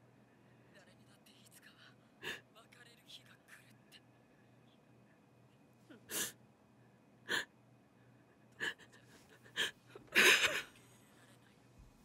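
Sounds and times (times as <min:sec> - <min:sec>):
person sobbing: 0:08.6 - 0:11.4.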